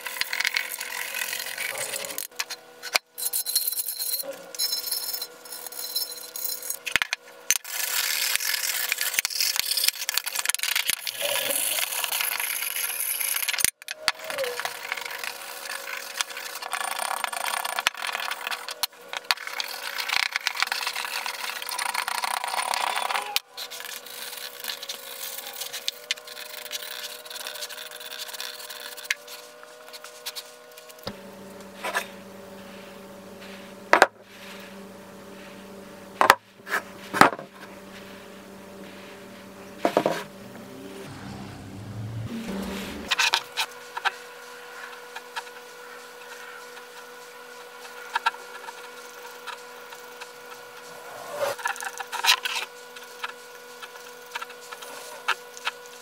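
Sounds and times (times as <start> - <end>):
steady hum: 13.2 - 56.0.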